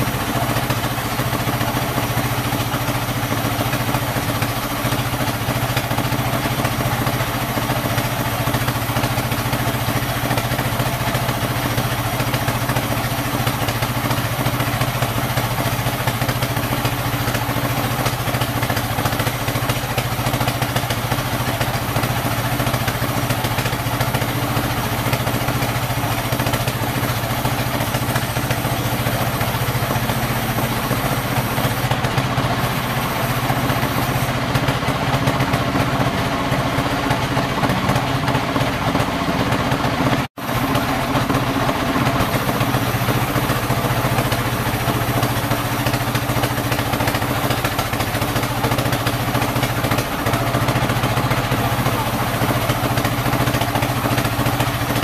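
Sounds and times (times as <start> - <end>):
sawmill machine hum: 0.0 - 55.0
saw blade cutting wood: 12.2 - 34.8, 42.1 - 55.0.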